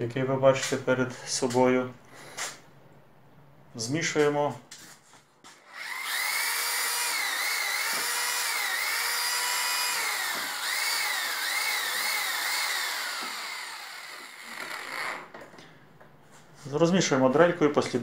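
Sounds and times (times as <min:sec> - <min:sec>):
electric drill mixer whine: 0:05.6 - 0:15.3.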